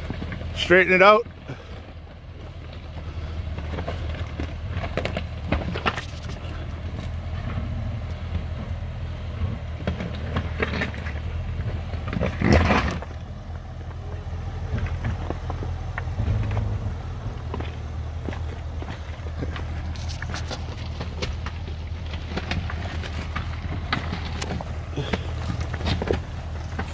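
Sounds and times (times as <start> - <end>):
car engine running low: 0.0 - 26.9
stones clicking and scraping: 3.8 - 7.1, 17.5 - 26.9
tyres crunching on rock: 10.0 - 26.9.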